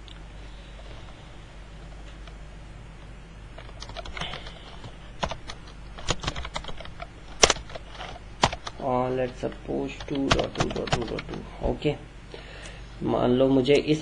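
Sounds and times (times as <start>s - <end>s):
faint steady hum: 0.0s - 14.0s
typing on computer keyboard: 3.6s - 9.4s, 10.0s - 11.4s.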